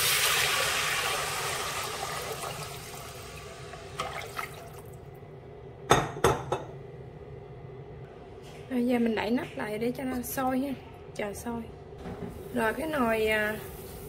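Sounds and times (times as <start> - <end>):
liquid pouring into pot: 0.0 - 5.0
oil sizzling: 0.0 - 5.0.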